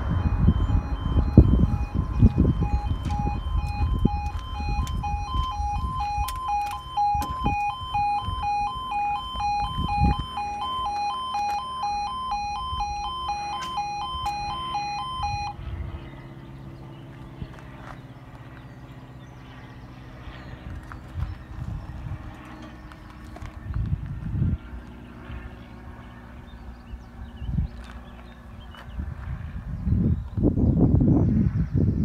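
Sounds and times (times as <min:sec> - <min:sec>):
level crossing alarm two-tone: 0:00.0 - 0:15.6
low rumble: 0:00.0 - 0:17.8.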